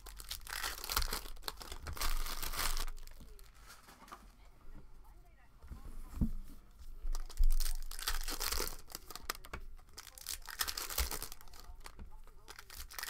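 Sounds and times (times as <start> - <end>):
foil wrappers tearing and crinkling: 0.0 - 4.0, 7.1 - 13.0.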